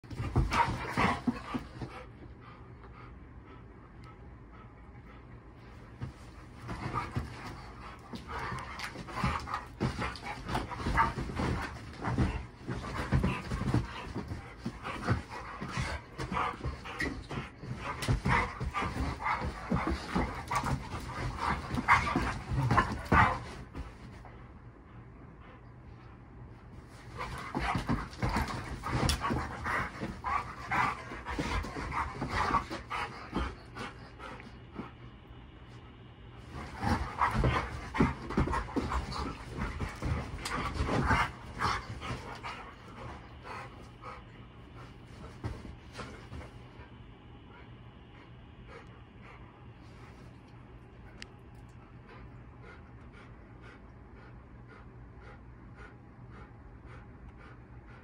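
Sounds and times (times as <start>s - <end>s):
dogs scuffling on a mattress: 0.0s - 2.2s, 5.7s - 24.3s, 26.7s - 35.0s, 36.4s - 46.9s
dogs vocalizing and panting: 27.0s - 34.9s, 36.5s - 44.4s.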